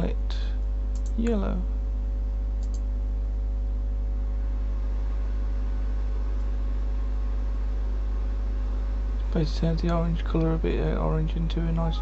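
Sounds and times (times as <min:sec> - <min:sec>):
low electrical mains hum: 0:00.0 - 0:12.0.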